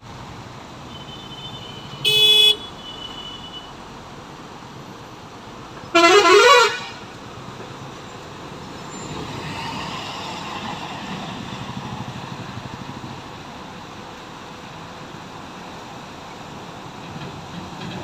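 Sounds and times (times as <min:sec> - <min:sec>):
traffic driving through water: 0:00.0 - 0:18.0
vehicle horn honking: 0:01.0 - 0:03.7, 0:05.9 - 0:07.0.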